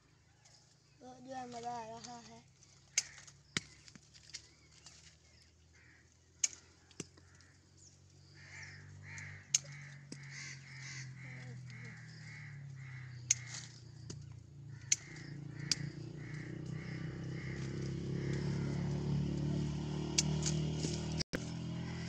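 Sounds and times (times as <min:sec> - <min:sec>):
twigs and stems snapping: 0:01.5 - 0:05.4, 0:06.3 - 0:07.6, 0:09.0 - 0:10.4, 0:13.2 - 0:18.6, 0:19.2 - 0:21.2
bird calling in fast series: 0:05.6 - 0:18.9.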